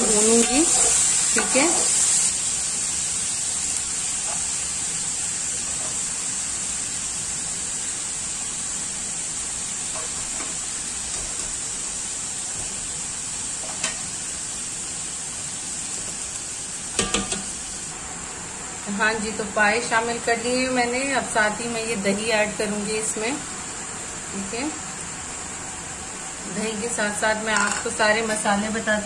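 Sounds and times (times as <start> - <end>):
meat and onions sizzling in oil: 0.0 - 29.0.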